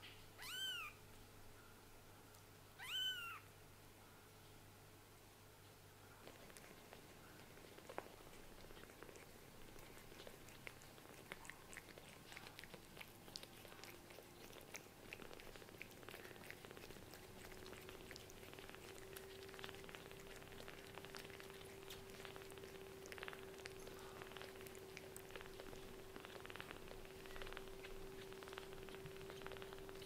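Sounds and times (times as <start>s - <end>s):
faint steady hum: 0.0s - 30.0s
cat licking: 6.2s - 30.0s
kittens suckling: 6.2s - 30.0s.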